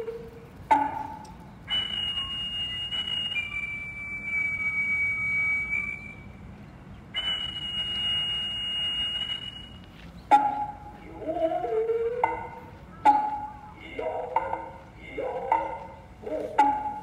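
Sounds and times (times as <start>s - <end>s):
flute long high notes: 0.0s - 6.4s, 7.1s - 17.0s.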